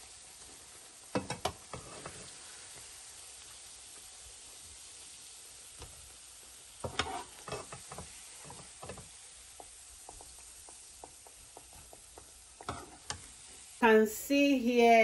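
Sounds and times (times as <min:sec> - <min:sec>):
plantain slices sizzling in oil: 0:00.0 - 0:15.0
metal spoon knocking on frying pan: 0:01.1 - 0:01.6, 0:09.6 - 0:13.2.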